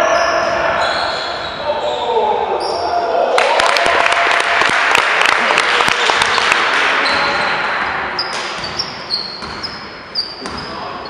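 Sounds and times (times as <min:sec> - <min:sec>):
sneaker squeaks: 0:00.0 - 0:02.9, 0:06.2 - 0:11.0
echoing hall noise: 0:00.0 - 0:11.0
basketball bouncing: 0:08.2 - 0:10.7.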